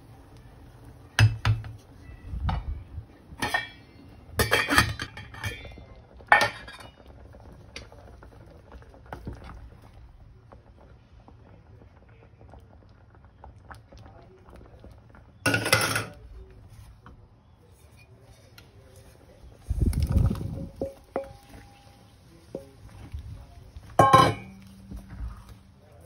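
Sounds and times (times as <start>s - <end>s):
metal pot and utensils clanking: 2.4s - 8.0s, 15.4s - 16.3s, 19.8s - 25.6s.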